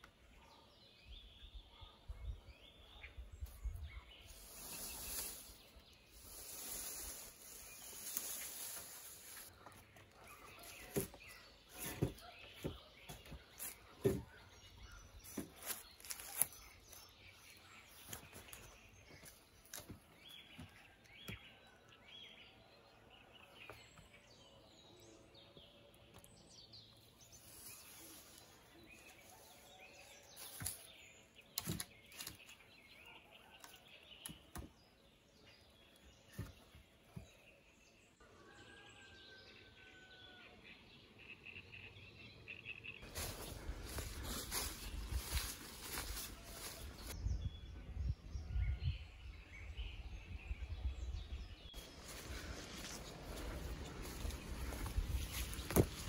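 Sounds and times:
faint bird calls and chirps: 0.0 - 37.7
faint forest ambience: 0.0 - 56.0.

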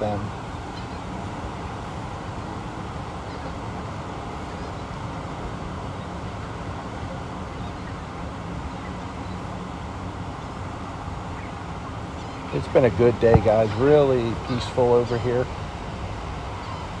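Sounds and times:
distant traffic rumble: 0.0 - 17.0.

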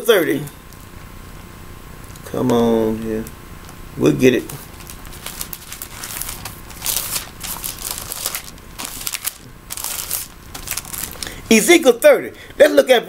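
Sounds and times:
pages turning: 4.4 - 11.5.

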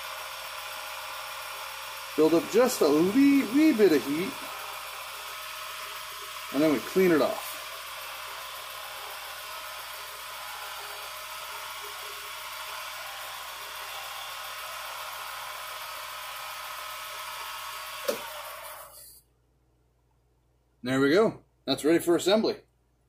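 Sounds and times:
wood lathe motor whining: 0.0 - 19.1
cloth wiping spinning wood: 2.2 - 4.8.

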